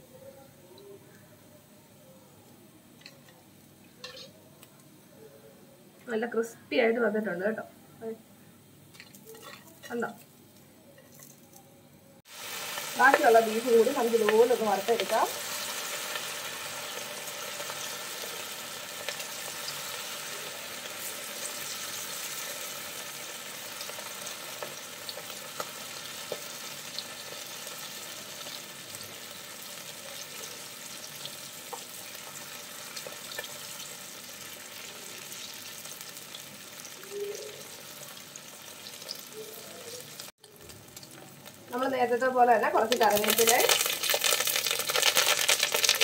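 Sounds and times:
beef sizzling in hot oil: 12.3s - 46.0s
oil pops and crackles: 42.9s - 46.0s.

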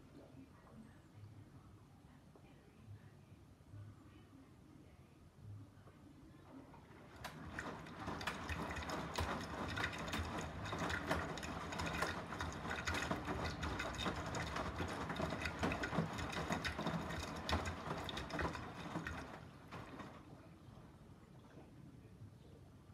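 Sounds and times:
low machine hum: 0.0s - 22.9s
water sloshing in drum: 6.6s - 21.7s
wet laundry tumbling and slapping: 7.1s - 20.4s.

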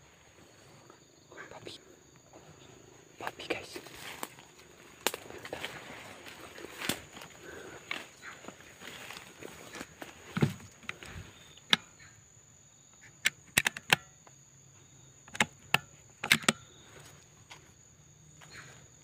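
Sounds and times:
sharp snaps and clicks: 5.0s - 5.3s, 12.9s - 14.4s, 15.3s - 16.6s.

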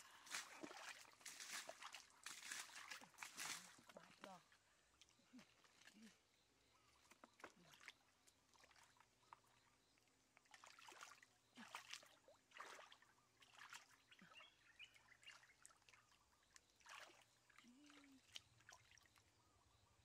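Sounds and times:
hands splashing in muddy water: 0.0s - 4.4s, 10.4s - 14.6s, 15.2s - 19.2s.

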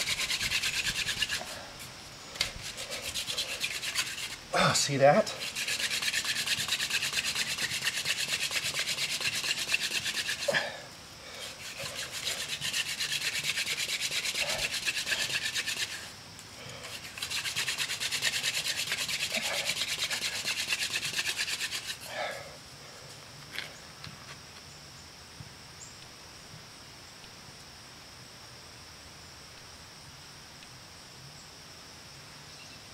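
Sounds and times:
wooden spindle rubbing on fireboard: 0.0s - 1.7s, 2.4s - 10.6s, 11.4s - 16.1s, 16.8s - 22.1s.

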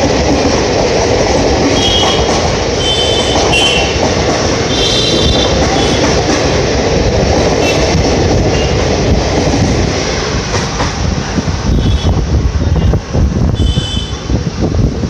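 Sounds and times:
train wheels clattering over rail joints: 0.0s - 11.7s
rush of air: 6.4s - 15.0s.

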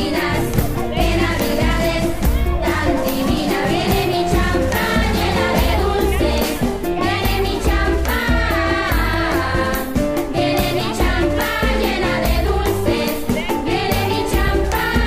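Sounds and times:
upbeat song with singing: 0.0s - 15.0s.

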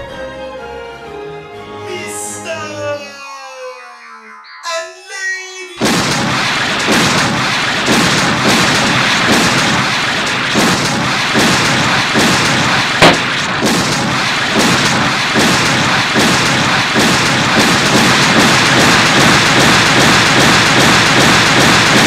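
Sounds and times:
cartoon pulsing barrage: 5.8s - 22.0s
sharp crack: 5.8s - 22.0s.

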